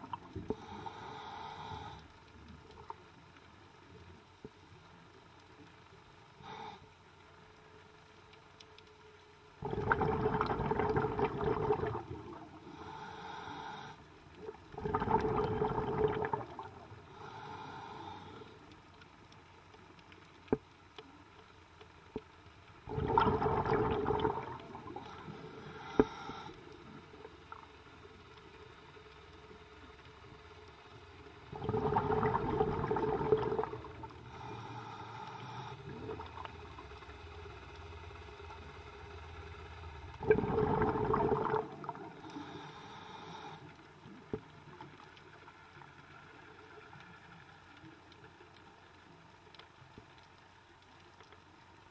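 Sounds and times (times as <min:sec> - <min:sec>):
bubbling exhalations underwater: 0:09.6 - 0:12.5, 0:14.7 - 0:16.9, 0:22.9 - 0:25.1, 0:31.5 - 0:34.1, 0:40.2 - 0:42.2
regulator inhalations: 0:25.1 - 0:26.7, 0:34.2 - 0:36.2.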